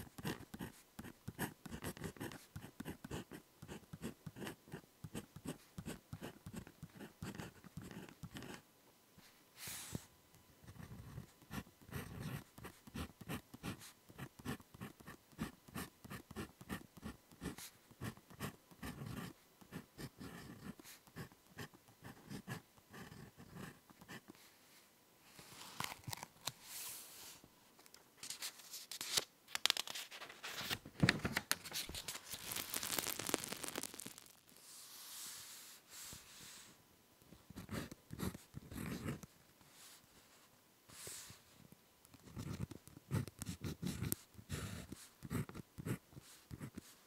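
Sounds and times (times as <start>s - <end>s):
ballpoint pen writing on paper: 0.0s - 8.6s, 10.7s - 24.2s, 37.5s - 39.2s, 42.2s - 46.8s.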